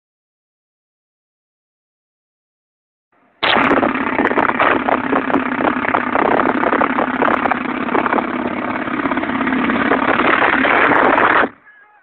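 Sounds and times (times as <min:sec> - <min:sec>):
rapid automatic cannon fire: 0:03.4 - 0:11.6.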